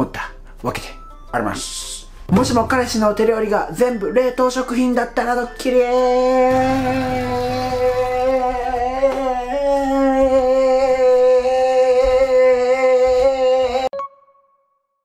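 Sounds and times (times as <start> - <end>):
man singing long held note: 5.8 - 14.0.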